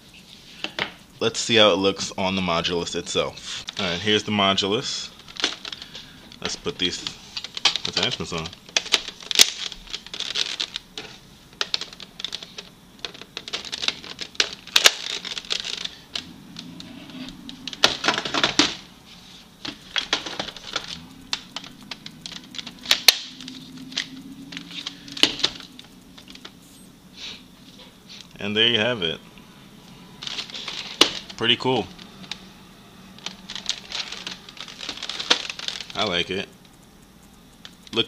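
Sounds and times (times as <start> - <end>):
plastic parts clicking into place: 5.2 - 16.7, 33.2 - 36.1.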